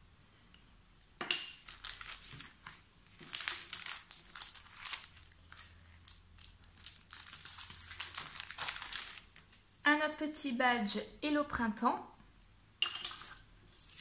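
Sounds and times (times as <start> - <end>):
plastic packaging crinkling: 1.5 - 9.6.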